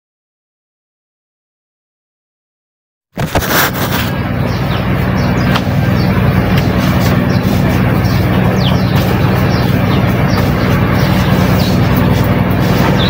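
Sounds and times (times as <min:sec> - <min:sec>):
ceiling fan humming: 0:03.2 - 0:13.0.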